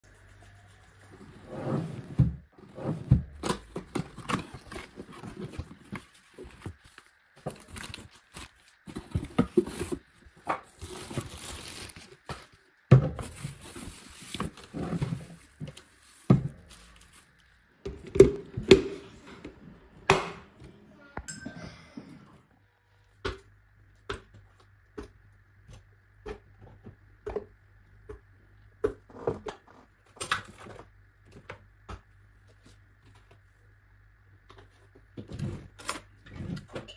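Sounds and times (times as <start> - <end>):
cardboard and plastic rustling: 0.1 - 18.7.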